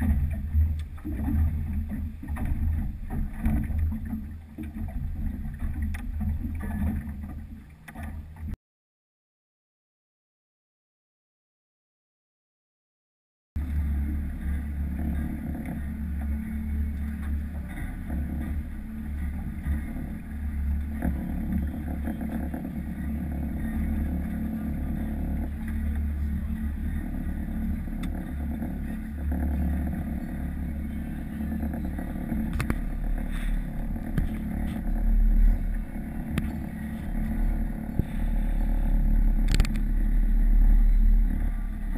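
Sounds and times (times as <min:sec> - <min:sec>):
boat motor humming: 0:00.0 - 0:08.6, 0:13.6 - 0:41.9.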